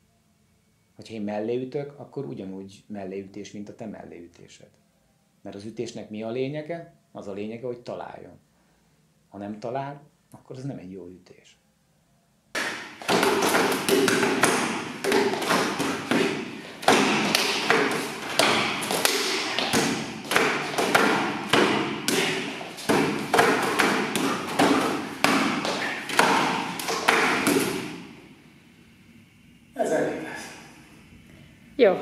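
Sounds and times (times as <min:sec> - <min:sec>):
hands striking wooden dummy: 0:12.6 - 0:28.2.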